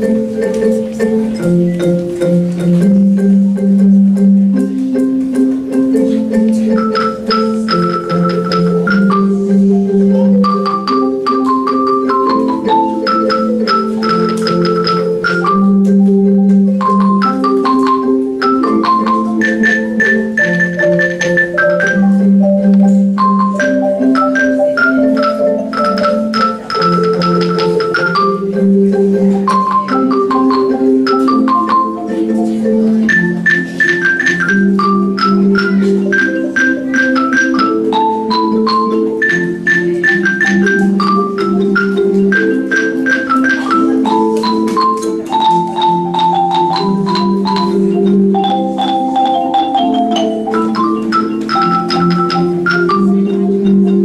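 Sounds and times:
xylophone ensemble playing: 0:00.0 - 0:54.0.

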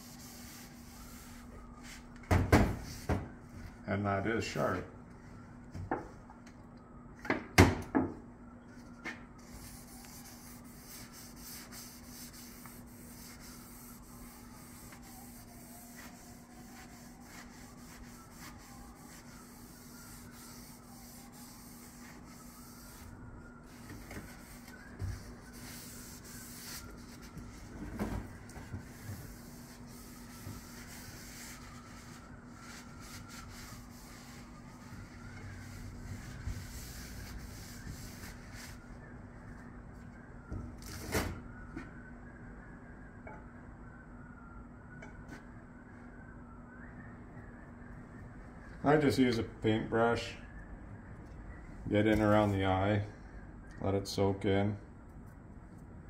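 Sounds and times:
cloth rubbing on wooden handle: 0:00.0 - 0:02.1, 0:09.4 - 0:39.0.

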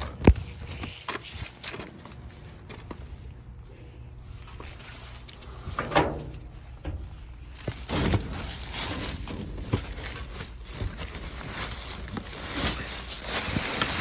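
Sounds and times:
rustling plastic bags and cardboard: 0:04.2 - 0:14.0.

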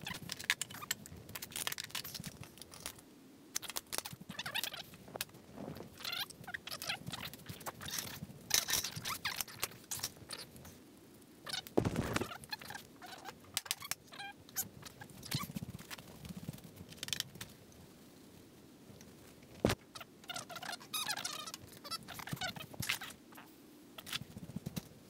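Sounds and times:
hands handling small tools: 0:00.0 - 0:03.0.

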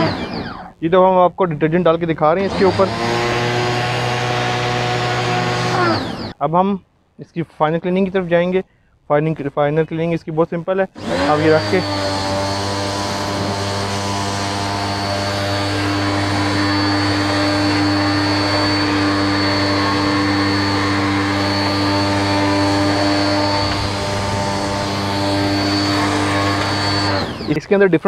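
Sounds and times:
pressure washer motor humming: 0:00.0 - 0:00.8, 0:02.4 - 0:06.3, 0:11.0 - 0:27.7.

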